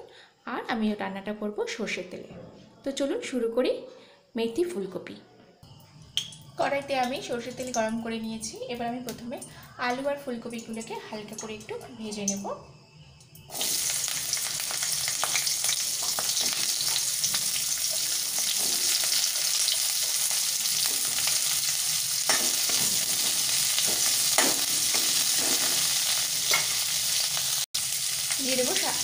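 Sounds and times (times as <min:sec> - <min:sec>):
vegetables sizzling in oil: 0:06.6 - 0:12.6, 0:13.4 - 0:29.0
spoon scraping metal pan: 0:22.2 - 0:26.8.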